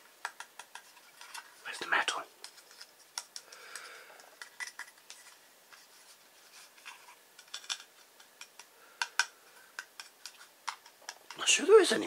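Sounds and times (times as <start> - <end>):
soft rub: 5.1 - 7.2.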